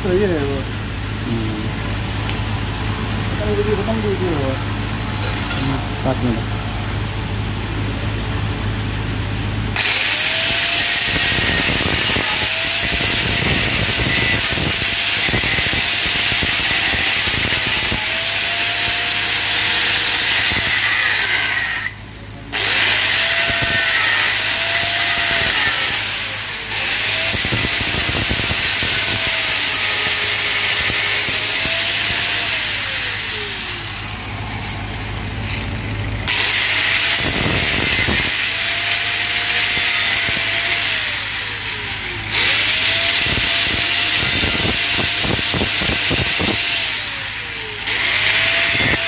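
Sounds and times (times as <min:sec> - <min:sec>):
angle grinder grinding metal: 0:05.1 - 0:06.4, 0:09.8 - 0:49.0.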